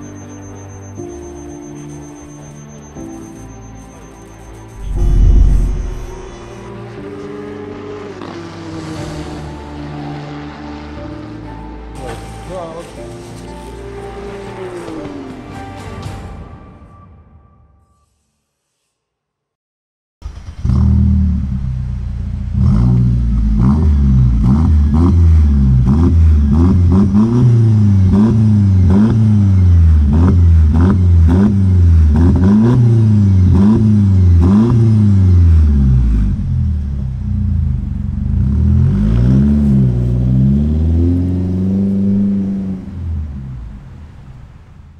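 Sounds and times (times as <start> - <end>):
car engine revving: 4.8 - 9.4, 20.2 - 44.5.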